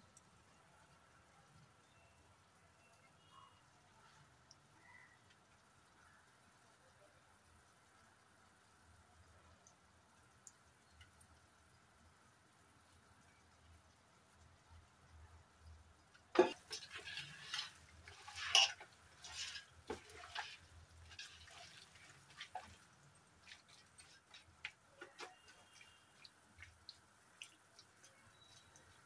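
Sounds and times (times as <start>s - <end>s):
wet squelching and scraping: 16.4s - 29.0s.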